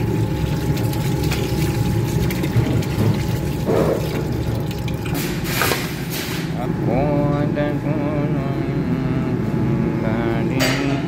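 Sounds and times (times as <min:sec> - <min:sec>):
tap water running into a pot: 0:00.0 - 0:05.9.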